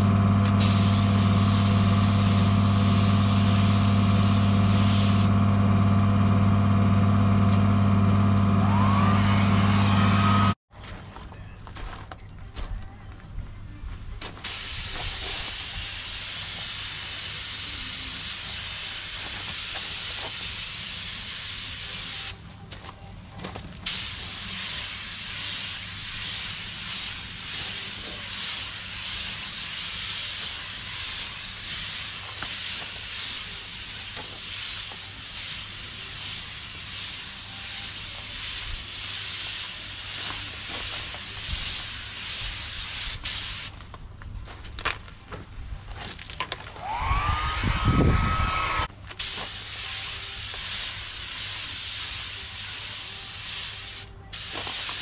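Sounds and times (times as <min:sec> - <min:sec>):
compressed air hissing: 0:00.6 - 0:05.3, 0:14.4 - 0:22.4, 0:23.9 - 0:43.7, 0:47.8 - 0:55.0.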